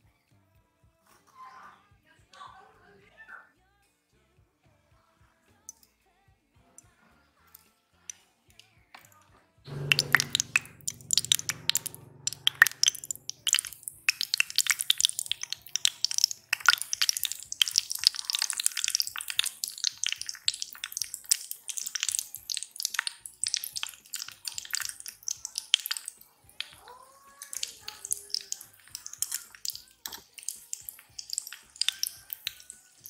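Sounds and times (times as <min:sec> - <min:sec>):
chicken deep-frying in oil: 0:09.7 - 0:33.0.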